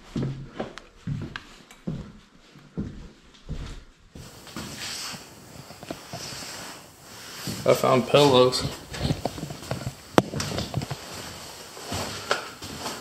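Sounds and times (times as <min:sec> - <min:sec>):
footsteps on hard floor: 0:00.0 - 0:13.0
rustling handling noise: 0:04.2 - 0:13.0.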